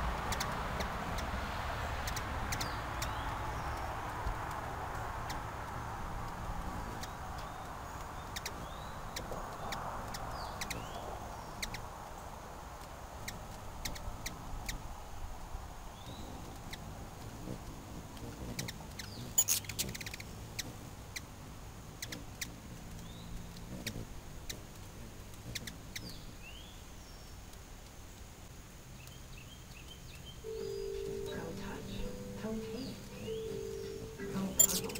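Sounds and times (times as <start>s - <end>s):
passing vehicle: 0.0s - 26.3s, 30.4s - 34.9s
high bird chirps: 18.3s - 21.2s, 29.0s - 34.9s.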